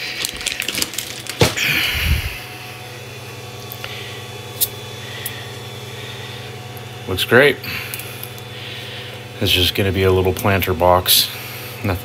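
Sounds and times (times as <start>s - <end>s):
low steady hum: 0.0s - 12.0s
fabric rustling and clicking: 0.1s - 1.6s.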